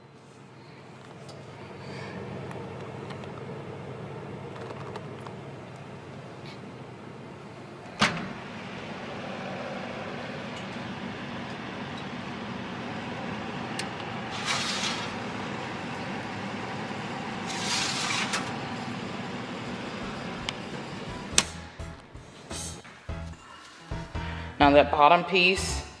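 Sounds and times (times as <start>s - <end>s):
dehydrator fan humming: 0.0s - 25.7s.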